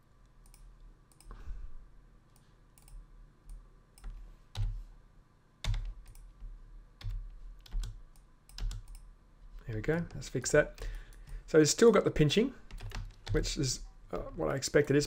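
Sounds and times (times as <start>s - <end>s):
computer mouse clicks: 0.4s - 1.4s, 2.3s - 4.7s, 5.7s - 6.4s, 7.0s - 9.1s
keyboard clicks: 7.0s - 9.1s, 12.7s - 13.5s.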